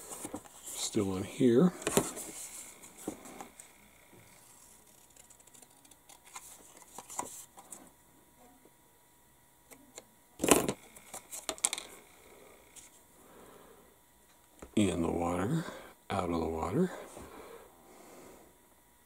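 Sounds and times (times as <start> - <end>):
paper sheet rustling: 4.4 - 7.6.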